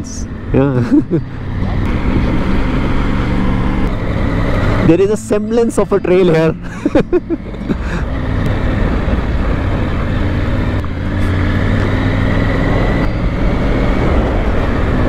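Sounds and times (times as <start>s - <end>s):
motorcycle engine running: 0.0s - 15.0s
wind rushing over microphone: 8.2s - 15.0s.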